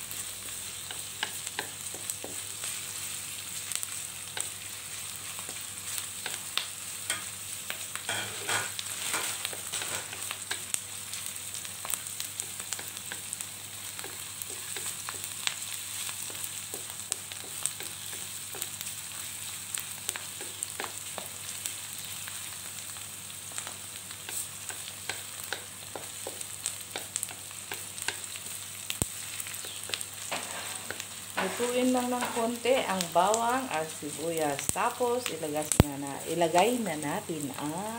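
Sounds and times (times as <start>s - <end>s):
onion sizzling in oil: 0.0s - 37.9s
wooden spatula scraping wok: 8.1s - 10.4s, 30.2s - 32.6s.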